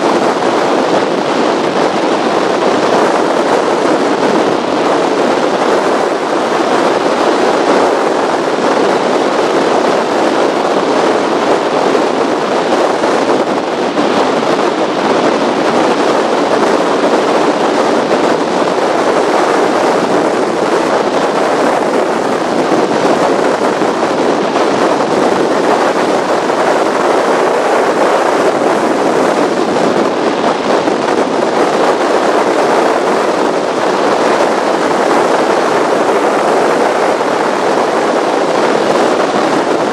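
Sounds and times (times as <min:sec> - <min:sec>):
water noise: 0:00.0 - 0:39.9
wind rushing on camera: 0:00.0 - 0:39.9.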